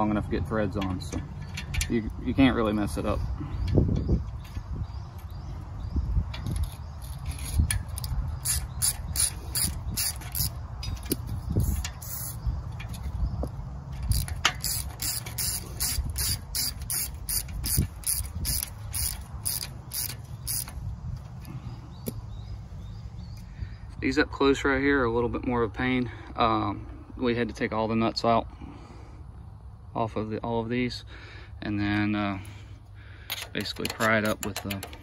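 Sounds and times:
socket ratchet clicking: 6.4 - 13.0, 14.0 - 20.8, 33.3 - 35.0.

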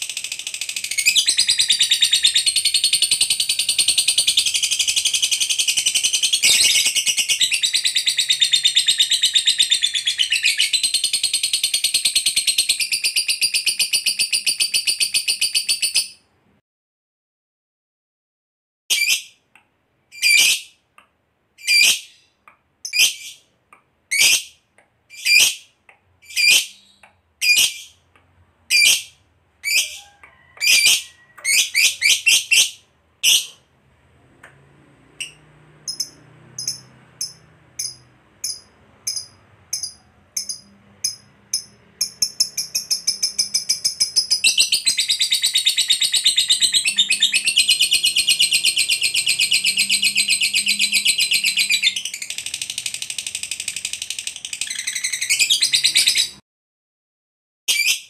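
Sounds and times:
bird chirping: 0.0 - 16.3, 18.9 - 19.5, 20.1 - 20.8, 21.6 - 33.7, 35.1 - 56.4
bird chattering trill: 35.2 - 56.4.

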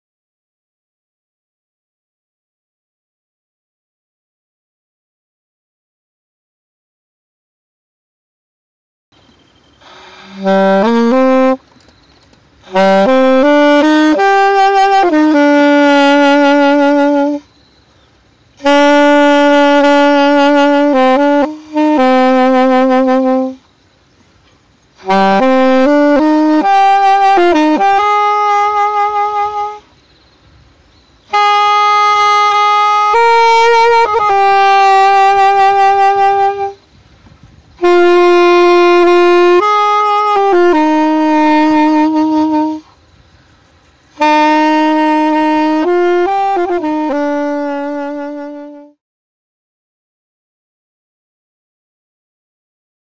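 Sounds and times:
saxophonist breathing: 9.8 - 10.4
solo saxophone melody: 9.8 - 17.7, 18.4 - 23.7, 24.8 - 49.0.

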